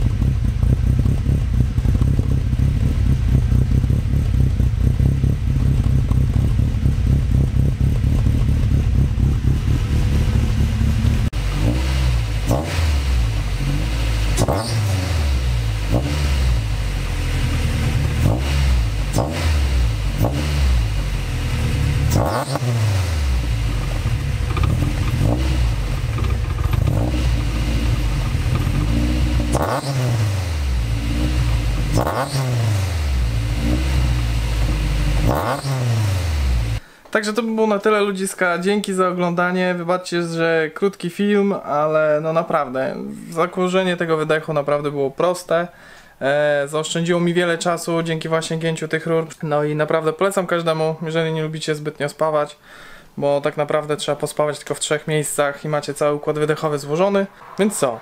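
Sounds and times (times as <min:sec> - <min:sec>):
car engine idling and revving: 0:00.0 - 0:36.8.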